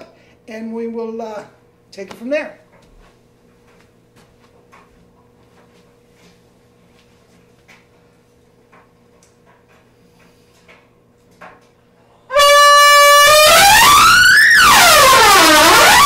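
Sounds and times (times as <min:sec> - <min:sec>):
trumpet notes sliding: 0:12.3 - 0:16.0.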